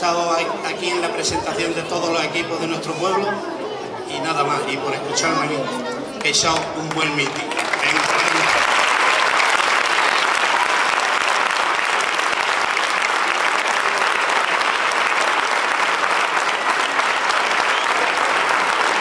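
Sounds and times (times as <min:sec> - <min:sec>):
audience applauding: 0:06.2 - 0:19.0.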